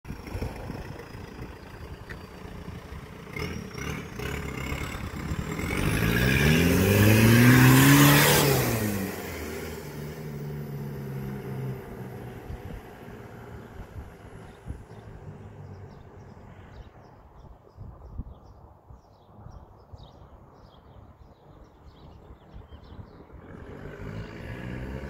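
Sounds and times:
diesel engine accelerating past: 0.1 - 16.9, 23.3 - 25.0.

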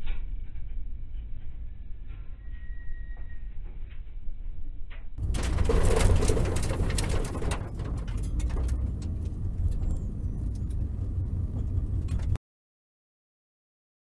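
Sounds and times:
car cabin rumble: 5.2 - 12.4
sharp clicks and knocks: 5.2 - 12.4.

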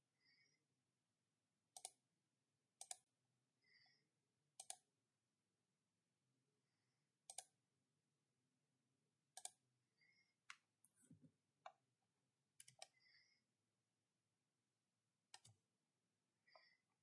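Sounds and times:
computer mouse clicks: 1.7 - 2.0, 2.8 - 3.1, 4.6 - 4.9, 7.2 - 7.5, 9.4 - 9.6, 12.6 - 13.0, 15.3 - 15.6.

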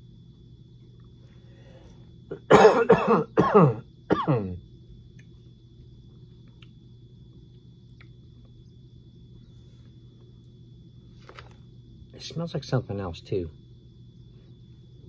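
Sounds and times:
man coughing: 2.3 - 4.6.

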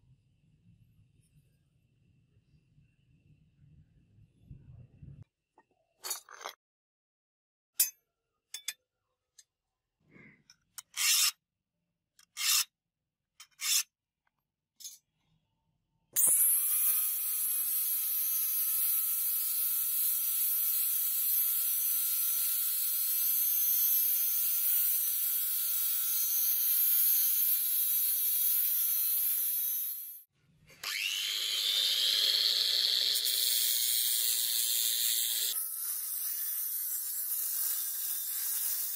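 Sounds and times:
angle grinder cutting metal: 16.2 - 30.2, 30.8 - 38.9.

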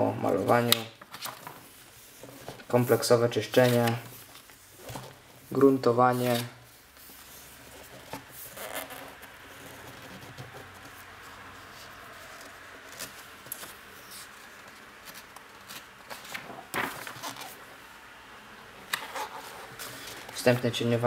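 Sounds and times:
page turning: 0.3 - 17.7, 18.9 - 20.6
paper rustling: 0.3 - 17.8, 18.9 - 21.0
hand sliding on book pages: 1.5 - 17.7.

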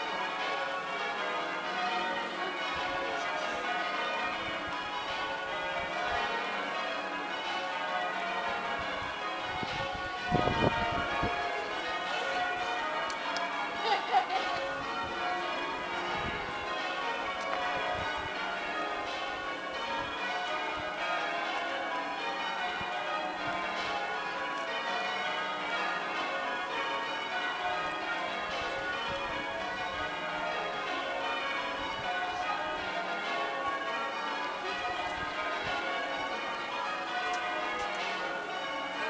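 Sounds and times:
church bells ringing: 0.0 - 39.0.

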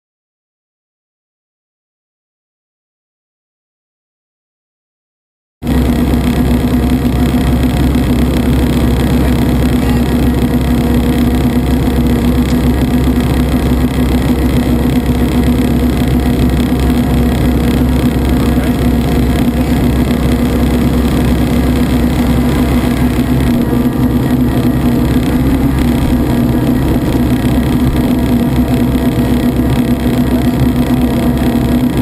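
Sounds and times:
helicopter engine and rotor drone: 5.6 - 32.0.

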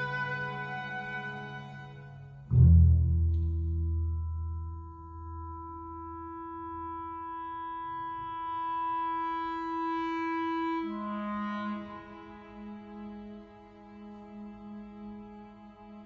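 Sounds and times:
low orchestral instruments chord: 0.0 - 16.0
wind instrument long note: 6.4 - 13.7.

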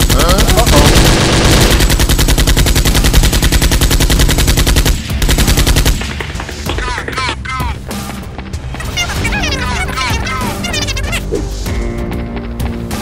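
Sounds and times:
automatic gunfire sound effect: 0.0 - 6.2.

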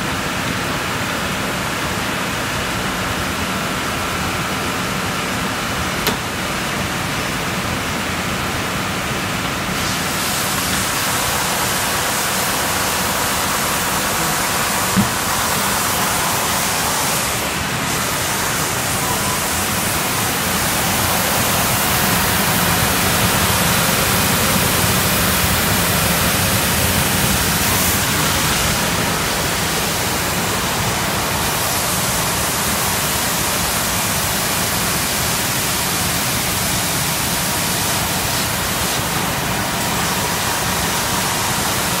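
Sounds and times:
sanding machine rushing noise: 9.8 - 34.2.

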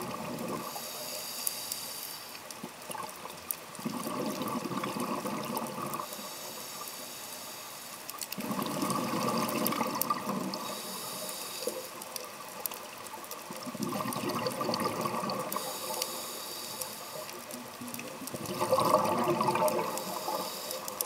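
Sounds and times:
regulator bubbles gurgling: 0.0 - 0.8, 2.8 - 6.2, 8.3 - 11.0, 11.9 - 21.0
faint clicks: 0.3 - 21.0
inhalation hiss: 0.6 - 2.4, 6.0 - 8.1, 10.5 - 12.0, 15.5 - 17.4, 19.7 - 21.0.

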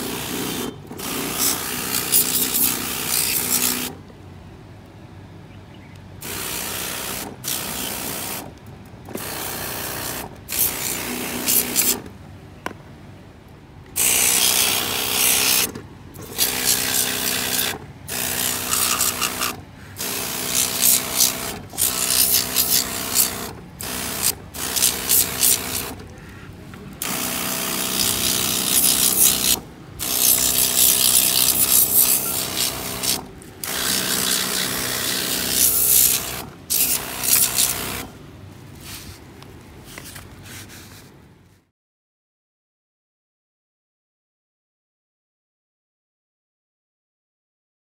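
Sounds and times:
water spray gun hissing: 0.0 - 4.0, 6.2 - 8.5, 9.2 - 12.1, 14.0 - 26.4, 27.0 - 38.1.

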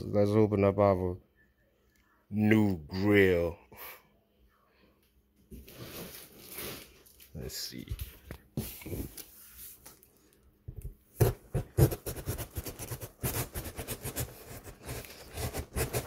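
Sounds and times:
cardboard box being opened: 11.2 - 16.0.

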